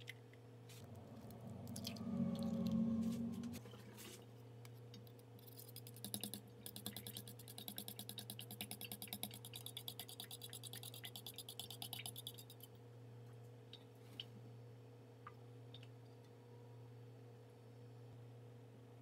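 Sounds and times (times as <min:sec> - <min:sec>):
steady low hum: 0:00.0 - 0:19.0
egg whisked in metal bowl: 0:05.3 - 0:12.7.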